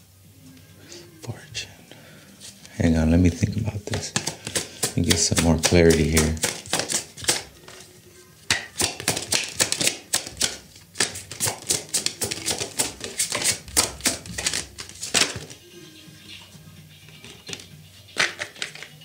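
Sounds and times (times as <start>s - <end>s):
cards being shuffled: 2.4s - 7.9s, 8.5s - 15.6s, 17.1s - 19.0s.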